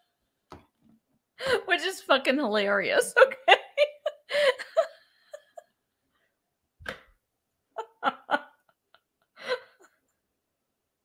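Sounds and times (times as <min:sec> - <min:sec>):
woman laughing: 0:03.0 - 0:05.8, 0:07.8 - 0:10.0.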